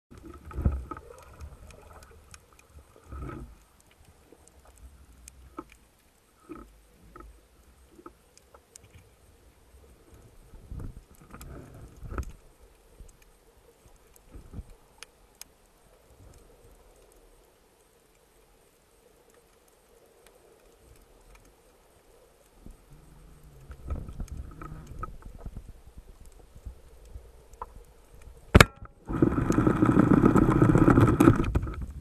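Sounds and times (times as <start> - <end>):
faint sharp clicks: 0.1 - 32.0
water rushing: 28.6 - 32.0.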